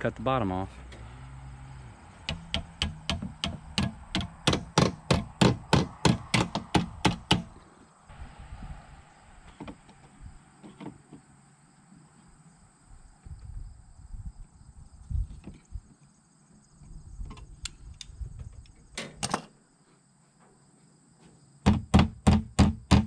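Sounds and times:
hand tool clicking on sheet metal: 2.3 - 7.5.

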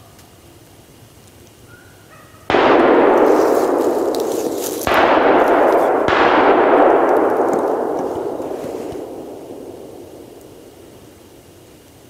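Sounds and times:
gunshots with long echo: 2.5 - 11.7.

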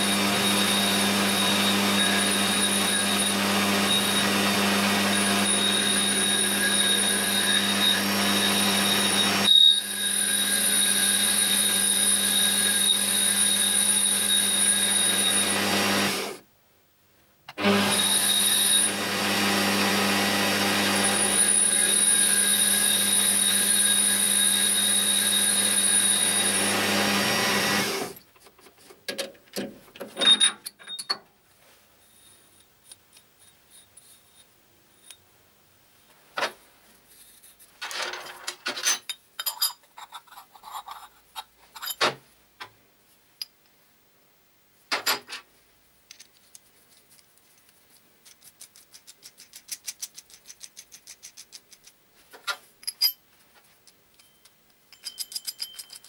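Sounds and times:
steel parts clinking on workbench: 37.8 - 41.0, 52.4 - 53.2, 54.2 - 56.0.

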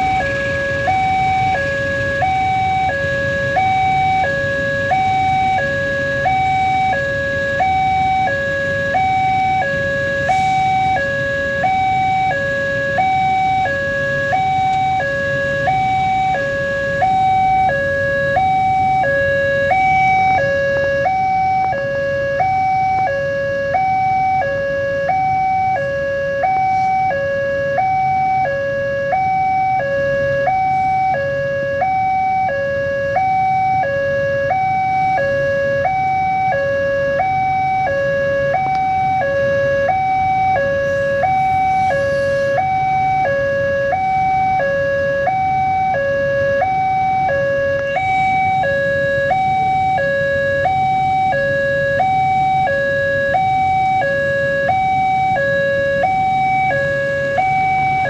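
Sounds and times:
train wagons rumbling: 0.0 - 4.3
two-tone level crossing alarm: 0.0 - 58.0.

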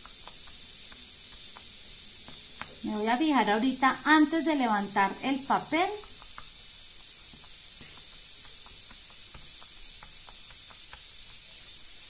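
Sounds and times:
steady hiss: 0.0 - 12.0
pen point tapping on paper: 6.0 - 11.4.

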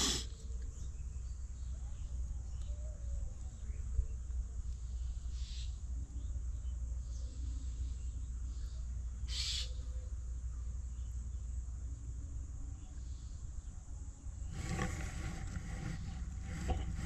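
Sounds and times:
short hissing noises: 0.0 - 0.3
faint low bird calls: 0.0 - 11.1
outdoor background noise: 0.0 - 17.0.

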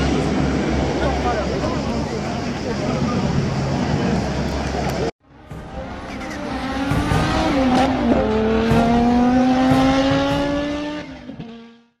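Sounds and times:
race car engine accelerating: 5.4 - 12.0.

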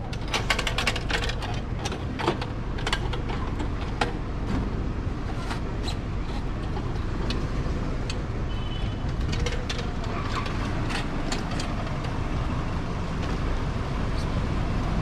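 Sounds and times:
low rumble of vehicles: 0.0 - 15.0
metallic clicks of wheel clamp: 5.3 - 12.2.

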